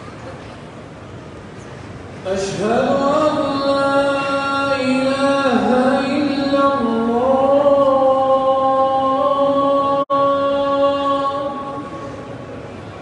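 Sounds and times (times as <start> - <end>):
man chanting recitation: 2.2 - 11.9.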